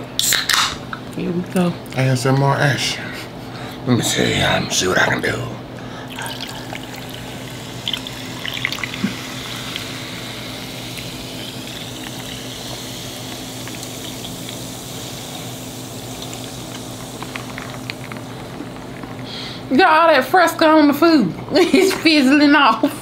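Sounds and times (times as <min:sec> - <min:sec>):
soda pouring and fizzing: 0:06.0 - 0:20.7.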